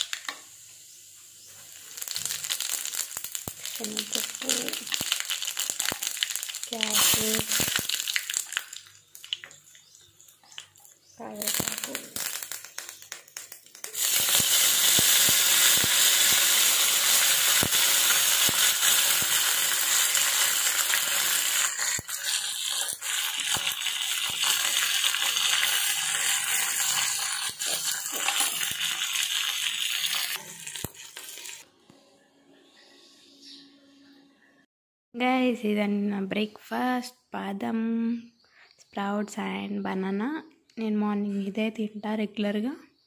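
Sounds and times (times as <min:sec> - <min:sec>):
leaves sizzling in hot oil: 0:00.0 - 0:31.7.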